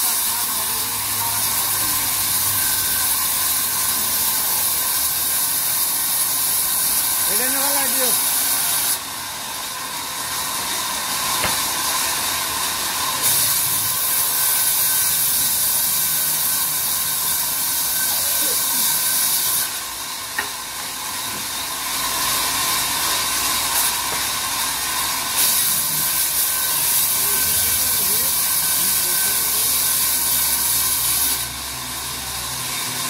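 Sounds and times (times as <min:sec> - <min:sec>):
band saw blade hissing through wood: 0:00.0 - 0:09.0, 0:13.0 - 0:20.5, 0:21.4 - 0:31.6.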